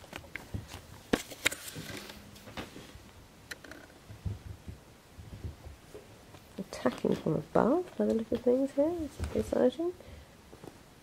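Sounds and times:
soft low thumps: 4.0 - 6.2.

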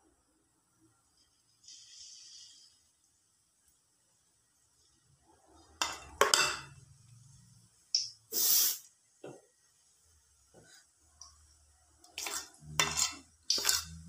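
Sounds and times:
short loud hiss: 8.3 - 8.9
metal spoon clinking in steel bowl: 12.2 - 14.0.

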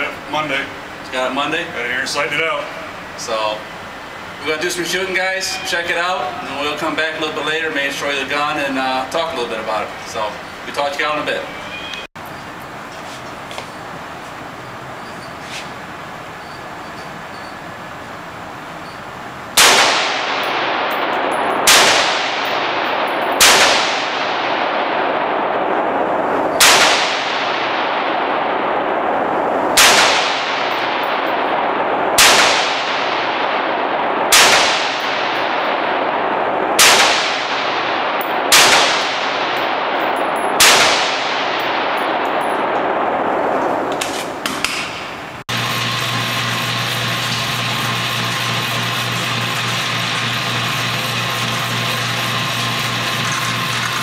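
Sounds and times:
rifle shots echoing indoors: 19.6 - 45.2.

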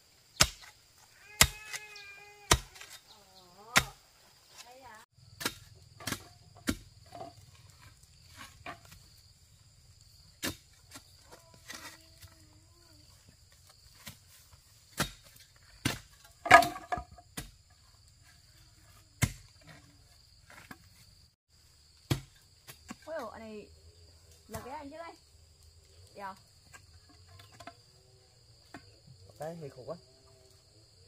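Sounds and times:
insects buzzing: 0.0 - 31.0
metal bar thudding into earth: 5.3 - 7.5, 14.9 - 17.6, 19.2 - 19.7.

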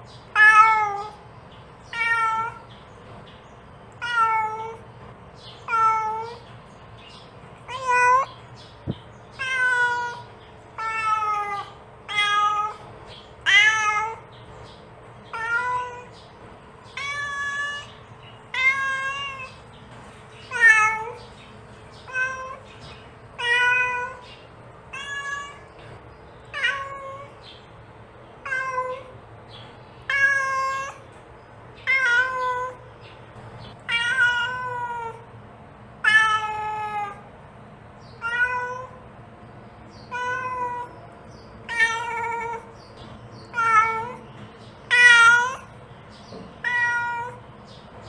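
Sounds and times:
cat meowing: 0.3 - 1.2, 1.9 - 2.7, 4.0 - 4.8, 5.6 - 6.5, 7.6 - 8.3, 9.3 - 12.8, 13.4 - 14.3, 15.3 - 16.2, 16.9 - 19.6, 20.4 - 21.2, 22.0 - 22.7, 23.4 - 24.2, 24.9 - 25.8, 26.5 - 27.4, 28.4 - 29.2, 30.0 - 31.1, 31.8 - 32.9, 33.8 - 35.3, 36.0 - 37.3, 38.2 - 39.0, 40.0 - 41.0, 41.6 - 42.8, 43.5 - 44.3, 44.9 - 45.8, 46.6 - 47.4.

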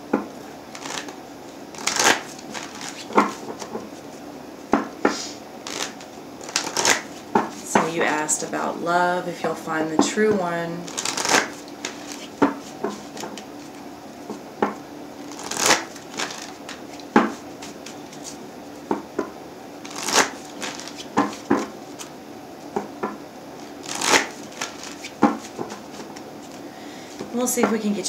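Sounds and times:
cards being shuffled: 0.7 - 4.1, 5.2 - 8.2, 10.8 - 13.8, 15.3 - 18.4, 19.8 - 22.1, 23.6 - 26.6.

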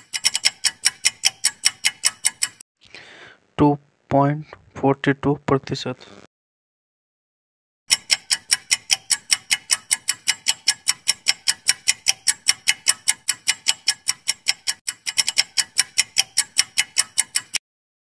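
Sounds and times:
clock ticking: 0.0 - 2.6, 7.9 - 17.6.

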